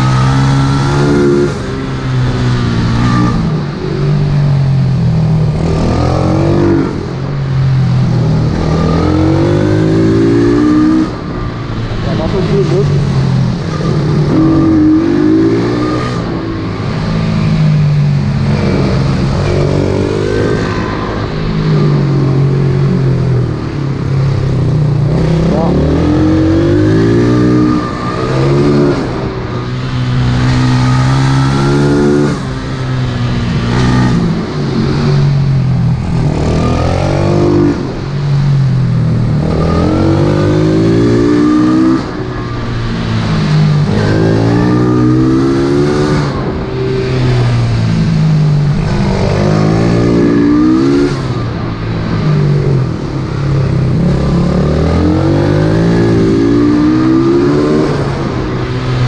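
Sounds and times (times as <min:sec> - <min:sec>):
motorbike engine revving: 0:24.0 - 0:59.0.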